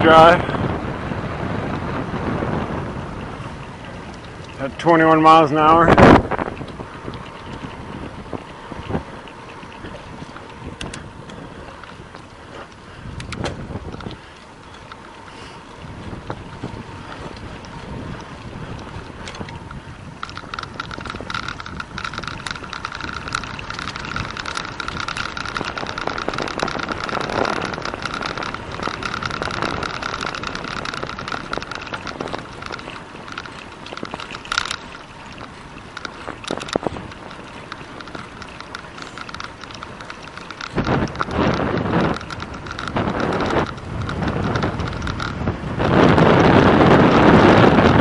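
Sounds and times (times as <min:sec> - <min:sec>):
bicycle tyre noise on pavement: 0:00.0 - 0:48.0
wind rushing over microphone: 0:00.0 - 0:48.0
sharp clicks: 0:17.1 - 0:45.4.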